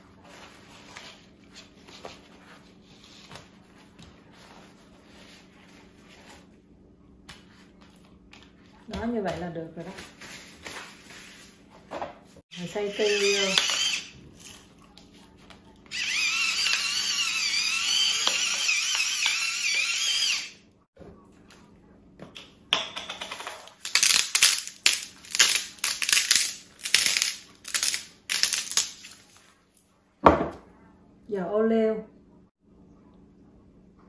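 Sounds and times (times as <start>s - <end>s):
electric pepper mill grinding: 12.6s - 14.1s, 15.9s - 20.6s, 23.9s - 28.9s.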